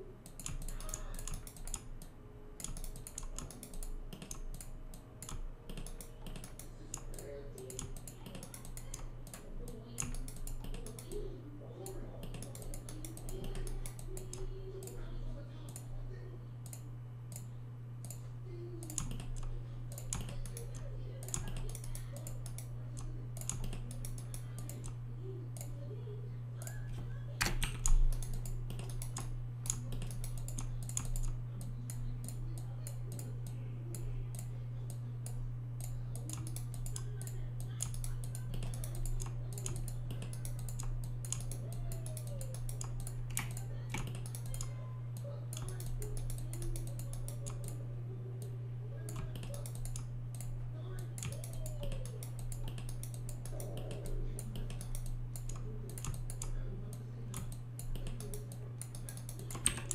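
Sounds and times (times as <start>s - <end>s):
low electrical hum: 0.0s - 59.9s
keyboard and mouse clicking: 0.2s - 11.3s, 12.2s - 15.0s, 16.6s - 25.9s, 27.4s - 47.8s, 48.4s - 59.9s.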